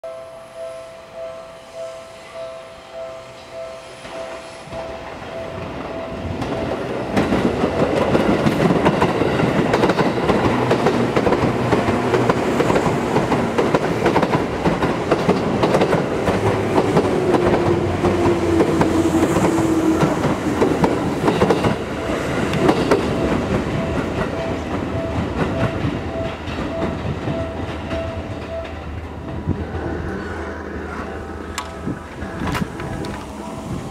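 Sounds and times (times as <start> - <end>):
electric train passing: 0.0 - 33.9
wheels clattering over rail joints: 28.4 - 33.9.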